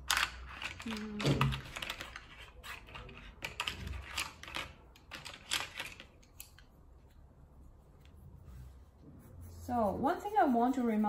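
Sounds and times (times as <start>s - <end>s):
coloured pencils clacking together: 0.0s - 6.7s.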